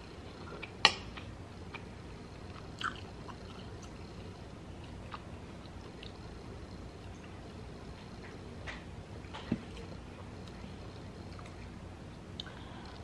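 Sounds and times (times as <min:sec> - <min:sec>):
person chewing: 0:00.4 - 0:04.0, 0:04.8 - 0:06.2.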